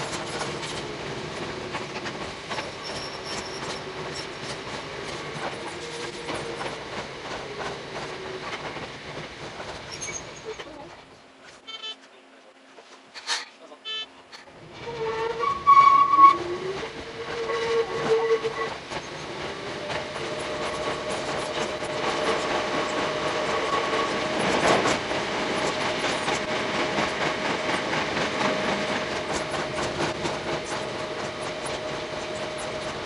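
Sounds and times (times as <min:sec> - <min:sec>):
train wheels clicking over rail joints: 0:00.0 - 0:11.0, 0:14.3 - 0:33.0
train horn: 0:14.8 - 0:18.8, 0:23.5 - 0:24.4.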